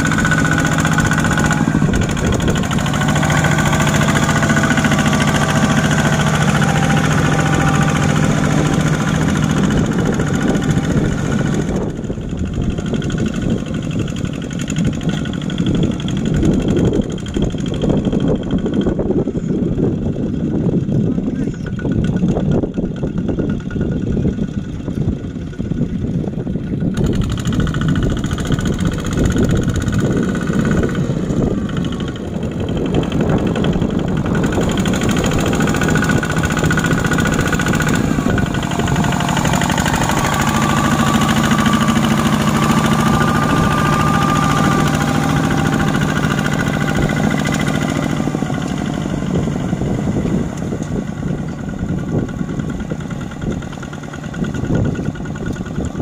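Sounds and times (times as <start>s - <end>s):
diesel engine chugging: 0.0s - 56.0s.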